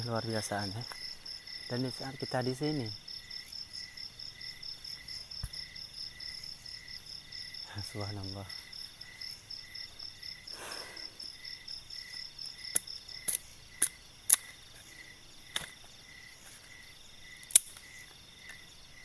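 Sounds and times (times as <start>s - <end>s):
crickets chirping: 0.0s - 19.0s
bamboo sticks snapping: 12.7s - 14.6s, 15.5s - 15.8s, 17.4s - 18.6s.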